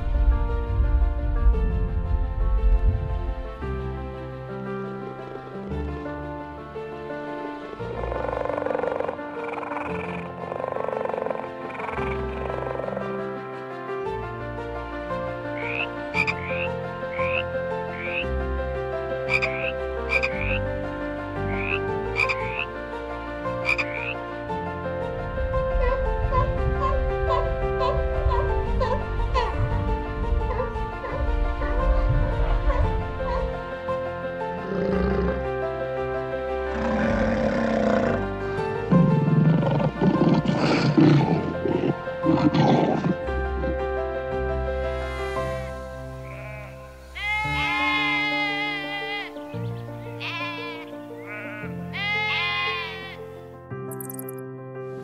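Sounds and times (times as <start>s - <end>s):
background music: 0.0s - 55.0s
lion growling: 7.6s - 13.2s, 34.6s - 35.5s, 36.6s - 43.8s
frog croaking: 7.6s - 13.3s, 15.5s - 18.4s, 19.3s - 20.7s, 21.4s - 22.8s, 23.6s - 24.2s, 46.1s - 53.2s.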